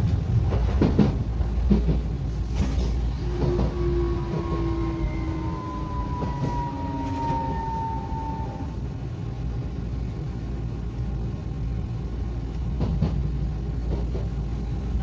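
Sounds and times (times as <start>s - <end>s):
wheels rumbling on rails: 0.0s - 15.0s
train motor whine: 2.6s - 9.4s.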